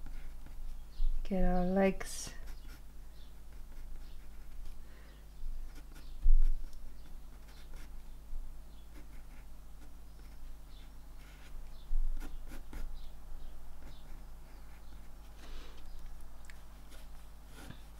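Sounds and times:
pencil scratching on paper: 0.0s - 0.6s, 2.3s - 4.7s, 5.7s - 7.9s, 8.9s - 12.9s, 13.8s - 15.1s, 16.8s - 17.9s
steady low hum: 0.0s - 17.9s.

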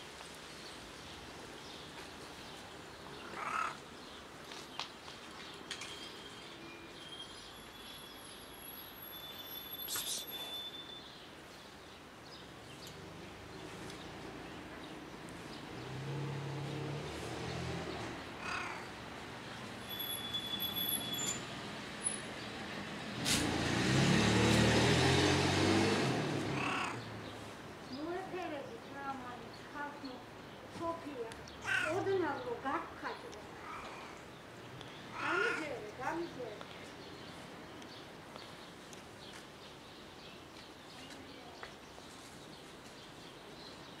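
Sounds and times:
short high chirps: 9.2s - 11.1s
vehicle passing on street: 12.9s - 28.3s.

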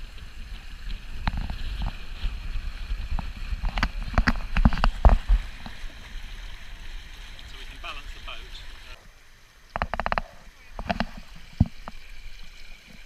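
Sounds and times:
wind rumbling on microphone: 0.0s - 6.7s
sail knocking and cracking: 1.2s - 5.7s, 9.8s - 11.9s.

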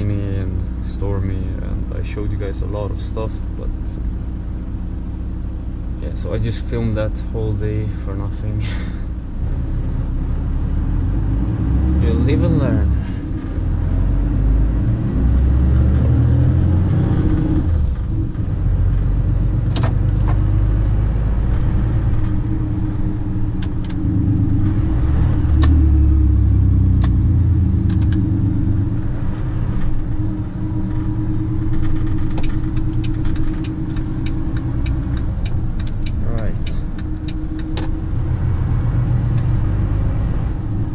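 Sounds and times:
truck diesel engine running: 12.1s - 40.9s
clicks and rattles in cab: 19.6s - 20.4s, 27.8s - 28.3s, 31.7s - 38.0s.

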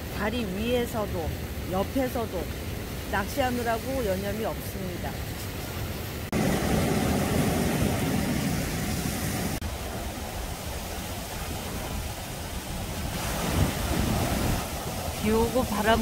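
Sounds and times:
wind buffeting microphone: 2.8s - 16.0s
surf breaking on beach: 6.3s - 16.0s.

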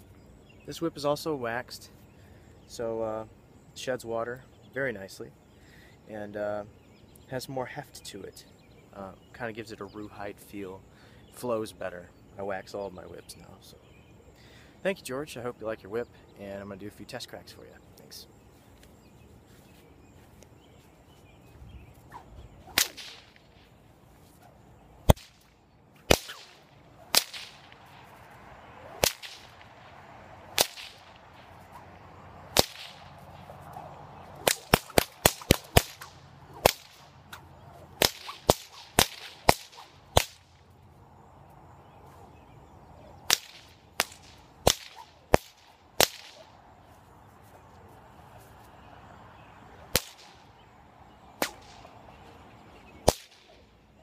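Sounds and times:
bullwhip cracking: 22.0s - 40.7s, 43.2s - 46.6s, 49.8s - 50.5s, 51.4s - 52.0s, 53.0s - 53.7s.

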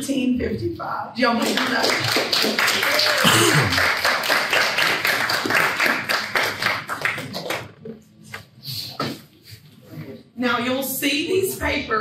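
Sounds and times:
audience clapping: 1.4s - 7.9s.

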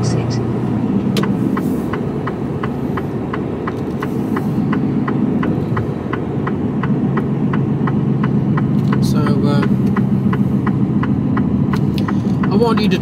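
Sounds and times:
diesel engine droning: 0.0s - 13.0s
turn indicator ticking: 0.0s - 13.0s.

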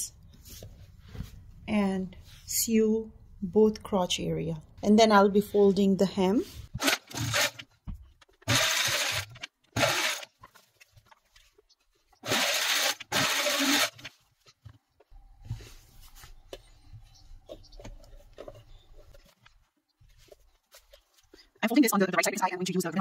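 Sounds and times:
fabric rustling and rubbing: 0.3s - 2.6s, 15.4s - 21.5s.

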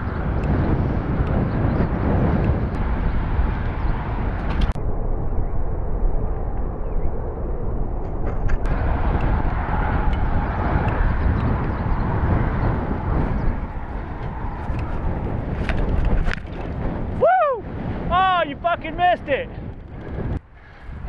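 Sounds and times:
wind rushing over microphone: 0.0s - 21.0s
bike rattling: 7.9s - 17.3s, 19.2s - 21.0s.

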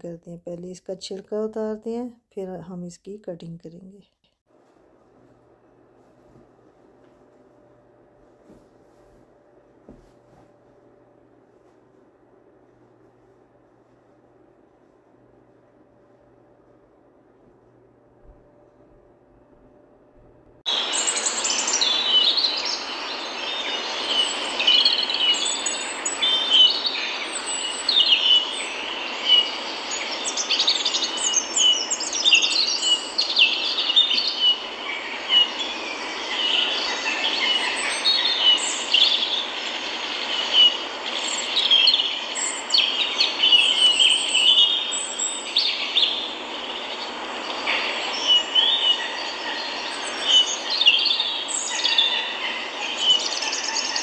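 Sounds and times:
steady hiss: 20.6s - 54.0s
small birds chirping: 20.7s - 54.0s.

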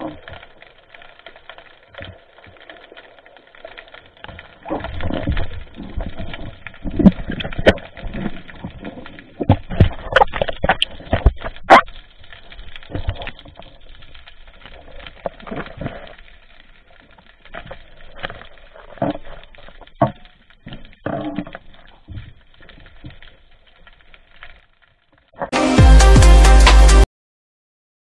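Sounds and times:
underwater clicks and knocks: 4.2s - 16.4s, 17.5s - 24.6s.

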